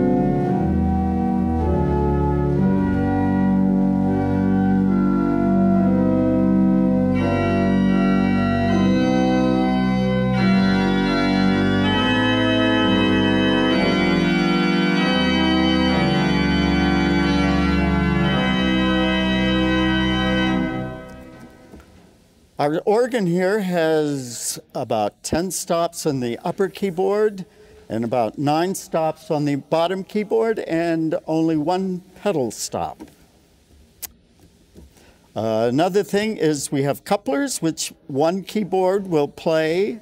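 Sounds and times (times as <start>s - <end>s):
pipe organ playing chords: 0.0s - 21.9s.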